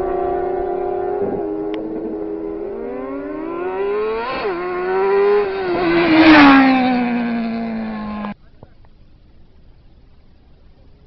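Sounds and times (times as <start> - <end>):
motorcycle accelerating and passing: 0.0 - 8.4.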